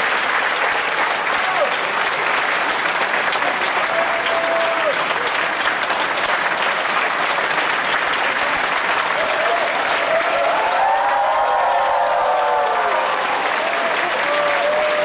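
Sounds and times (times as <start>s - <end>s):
audience clapping: 0.0s - 15.0s.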